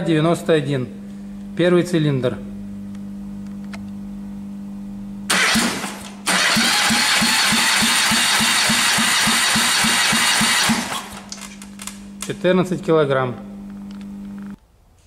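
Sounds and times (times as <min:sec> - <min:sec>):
engine cranking without firing: 0:05.3 - 0:11.9.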